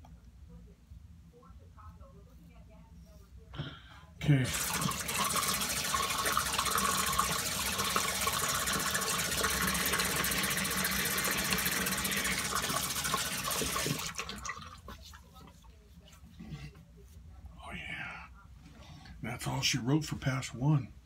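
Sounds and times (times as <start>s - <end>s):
water running from a tap: 4.2s - 15.0s.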